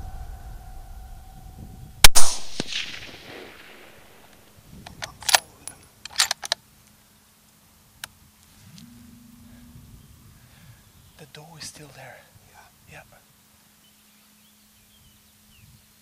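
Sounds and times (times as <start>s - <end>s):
rifle shot with echo: 2.0s - 5.6s
metallic rifle clicks: 4.8s - 6.6s.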